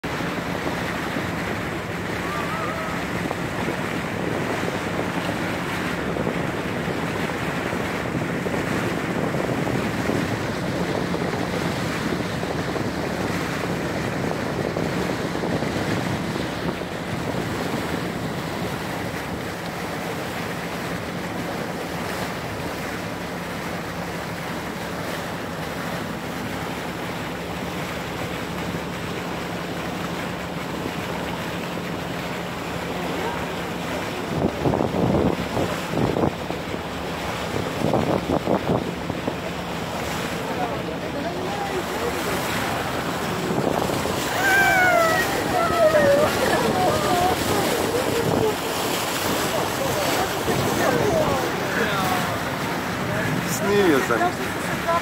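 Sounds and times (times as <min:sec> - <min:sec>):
wind on the microphone: 0:00.0 - 0:22.8, 0:33.2 - 0:55.0
boat engine humming: 0:00.0 - 0:55.0
sea water moving past boat: 0:00.0 - 0:55.0.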